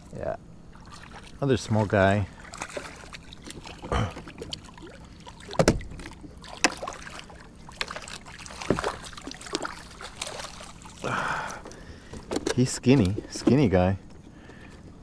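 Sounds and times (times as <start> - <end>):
low background hiss: 0.0 - 15.0
water splashes: 0.7 - 11.9
knocks on boat: 5.6 - 6.8, 8.6 - 9.0.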